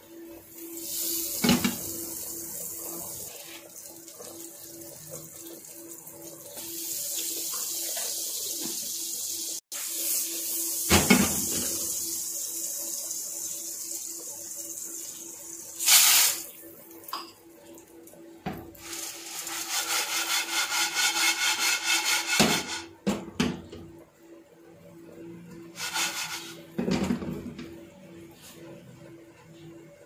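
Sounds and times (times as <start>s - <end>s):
butter and oil sizzling: 6.6s - 16.5s, 18.8s - 22.8s.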